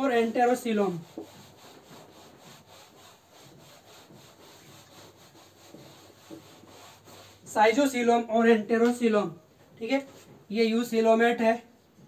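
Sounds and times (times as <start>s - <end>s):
whiteboard eraser rubbing: 0.0s - 7.9s.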